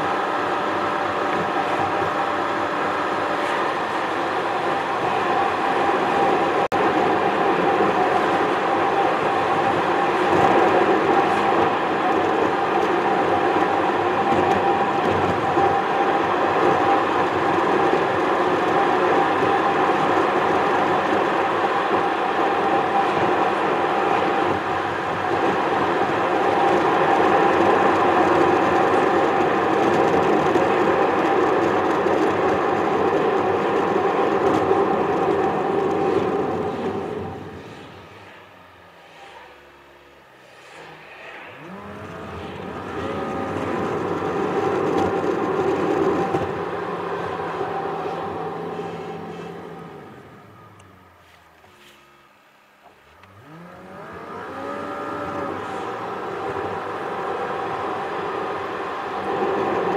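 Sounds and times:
tyre rumble and engine hum: 0:00.0 - 0:59.9.

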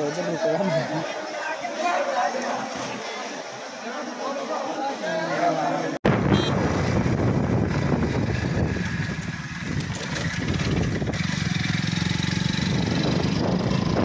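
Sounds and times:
engine running with fast throb: 0:06.4 - 0:14.0.

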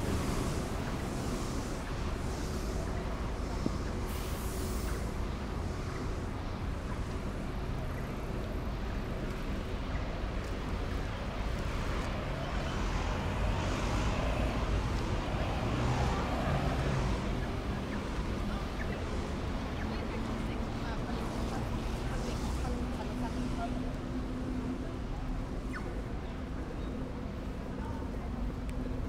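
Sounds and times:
busy city street traffic: 0:00.0 - 0:29.0
vehicles passing: 0:00.0 - 0:29.0.

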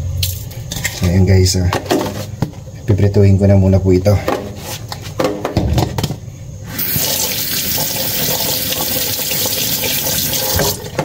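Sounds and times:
tap running into sink: 0:06.8 - 0:11.0.

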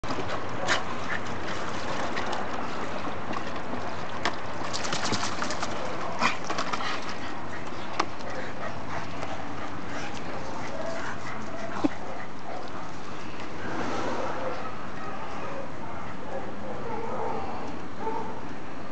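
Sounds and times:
dog splashing in water: 0:00.0 - 0:07.2.

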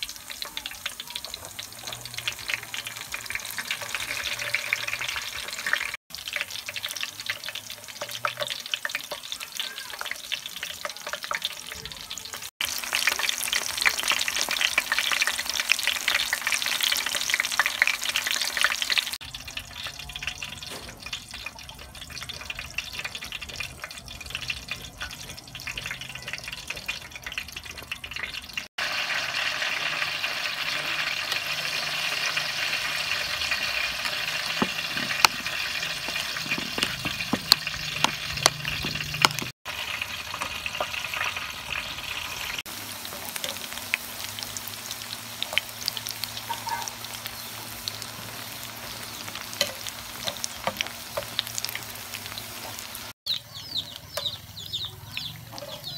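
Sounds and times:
deep-frying sizzling in oil: 0:00.0 - 0:55.9
spoon stirring thick batter: 0:34.6 - 0:39.5.

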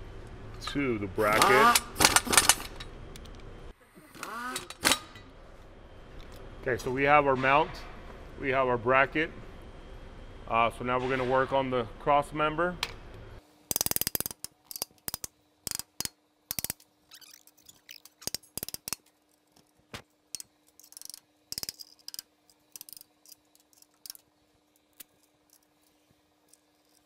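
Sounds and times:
metal tools clicking and clinking: 0:01.3 - 0:03.3, 0:04.5 - 0:05.3, 0:13.7 - 0:27.0.

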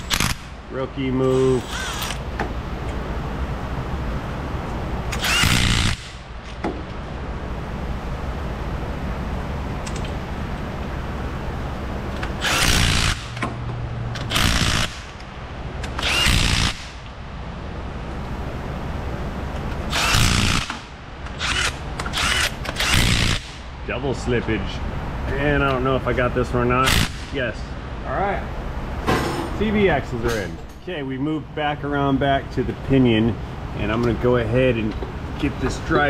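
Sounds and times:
power tool driving bolts: 0:00.0 - 0:00.5, 0:01.3 - 0:02.5, 0:05.1 - 0:06.6, 0:12.2 - 0:15.2, 0:15.8 - 0:17.1, 0:19.9 - 0:23.6
steady low hum: 0:00.0 - 0:36.0.

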